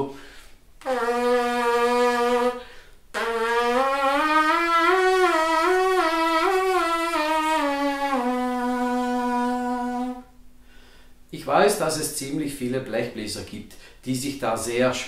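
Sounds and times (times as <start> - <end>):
trumpet player's lip buzz: 0.1 - 10.8.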